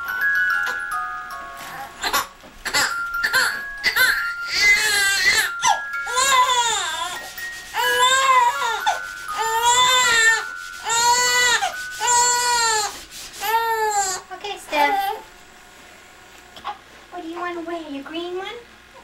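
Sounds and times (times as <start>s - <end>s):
newborn baby crying: 2.0s - 7.2s, 7.8s - 14.3s.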